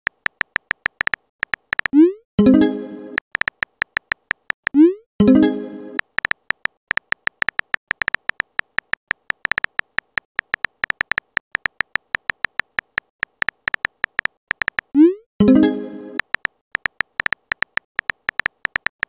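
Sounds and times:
phone keyboard tap clicks: 0.1 - 2.0, 3.2 - 4.8, 6.0 - 14.9, 16.2 - 19.0.

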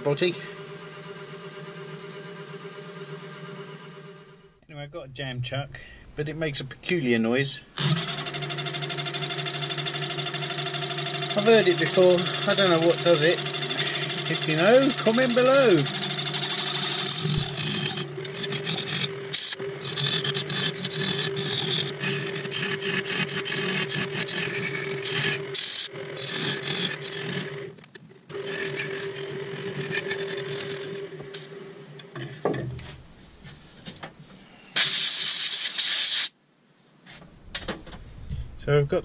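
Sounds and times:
wood lathe running: 0.0 - 4.5, 7.8 - 31.6
gouge scraping wood: 11.3 - 27.7, 28.3 - 31.4.

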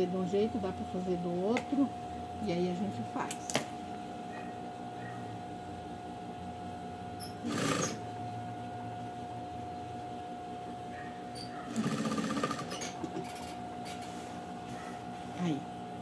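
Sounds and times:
sewing machine stitching: 7.4 - 8.0, 11.7 - 13.4.

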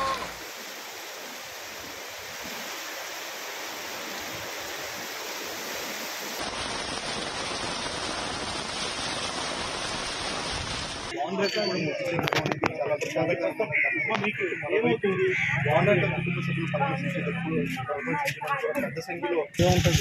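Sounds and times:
heavy rain pouring: 0.0 - 11.2.

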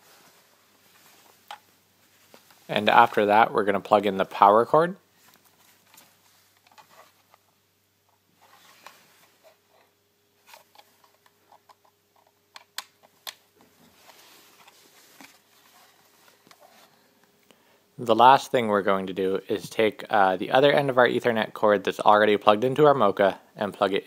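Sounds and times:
cables and plug rustling: 5.2 - 17.4.

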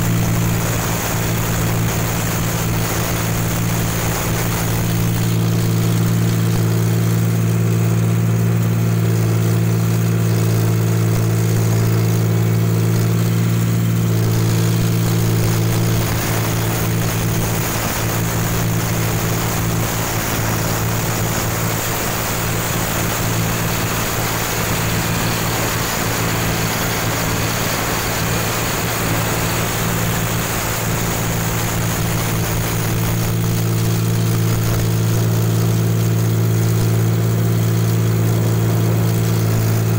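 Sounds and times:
combine harvester engine drone: 0.0 - 39.9
grain pouring hiss: 14.2 - 35.9.

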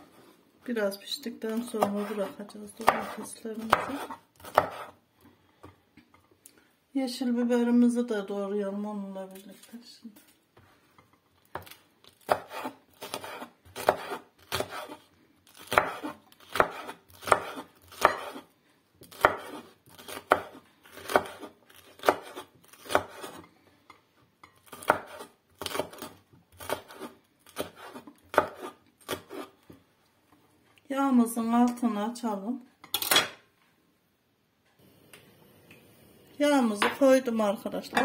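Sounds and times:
knife chopping on wooden board: 1.8 - 5.0, 11.5 - 15.0, 15.6 - 18.4, 19.1 - 23.5, 24.7 - 29.5.

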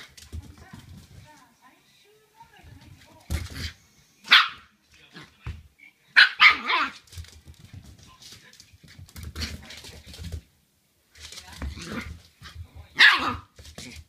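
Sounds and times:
puppy barking sharply: 4.3 - 4.7, 6.2 - 7.0, 13.0 - 13.4.

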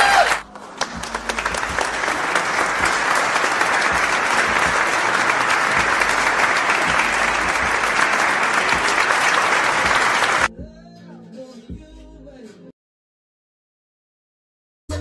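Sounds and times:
crowd applause: 0.0 - 10.5.

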